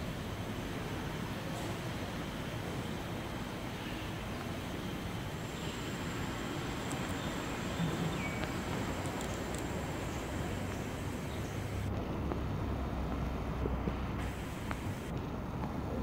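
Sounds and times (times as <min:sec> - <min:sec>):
hiss: 0:04.5 - 0:11.9, 0:14.1 - 0:15.1.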